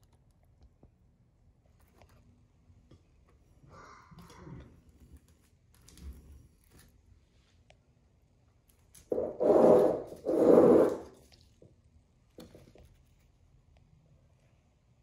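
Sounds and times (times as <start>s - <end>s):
loud rubbing scrapes: 9.1s - 11.2s.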